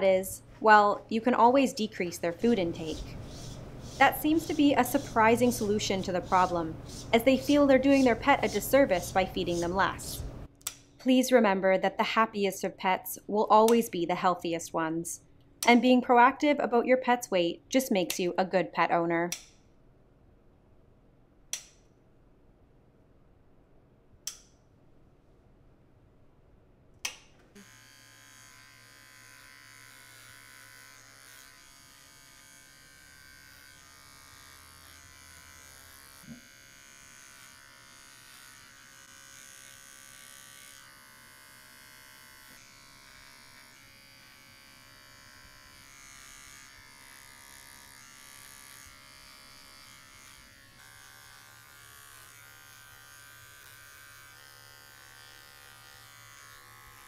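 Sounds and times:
pet clipper running: 2.1s - 10.2s, 27.6s - 57.0s.

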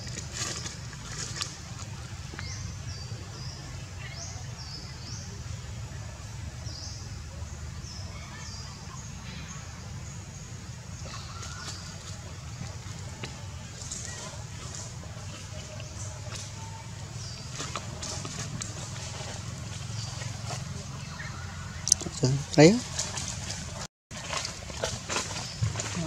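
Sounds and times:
low outdoor rumble: 0.0s - 26.0s
bird chirping: 15.7s - 23.1s.

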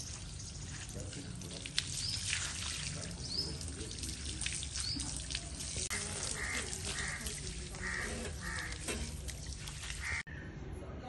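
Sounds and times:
hose water splashing: 0.0s - 10.2s
birds chirping: 1.8s - 10.5s.

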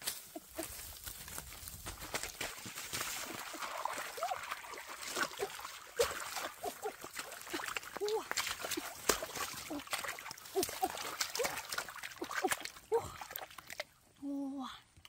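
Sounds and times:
shallow water trickling: 2.5s - 14.4s.

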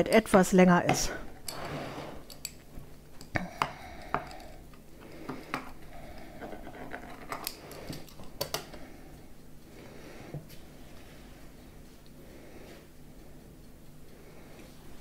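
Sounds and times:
metal clicks and knocks on plate: 6.4s - 8.8s.

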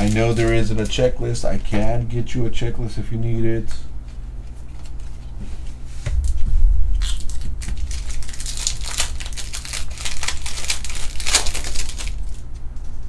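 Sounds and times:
wrapper tearing and crinkling: 0.0s - 1.1s, 7.0s - 12.6s
dull low bump: 6.0s - 10.5s.

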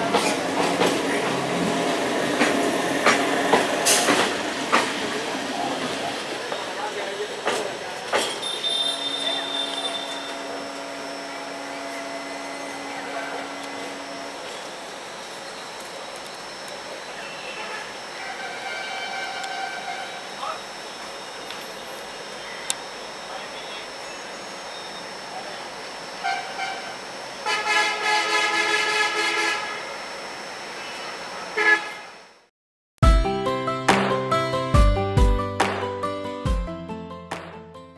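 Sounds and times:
electric train humming: 0.0s - 32.4s
electric train horn: 8.4s - 14.9s, 17.1s - 20.4s, 26.2s - 30.0s, 30.8s - 32.4s
high electrical whine: 8.4s - 27.5s.

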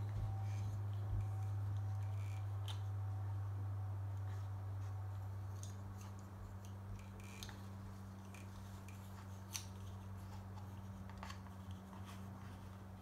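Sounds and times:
steady low hum: 0.0s - 13.0s
clicks and rustles of wires: 4.1s - 13.0s.

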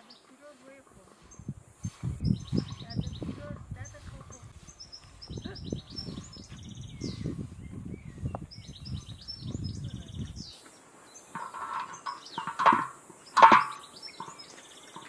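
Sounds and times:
broom brushing metal griddle: 0.0s - 7.6s
small birds chirping: 0.0s - 15.0s.

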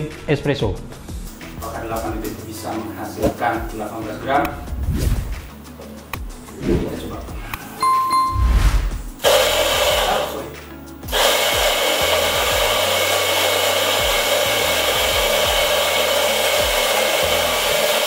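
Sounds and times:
coffee grinder grinding: 9.2s - 10.4s, 11.1s - 18.0s.

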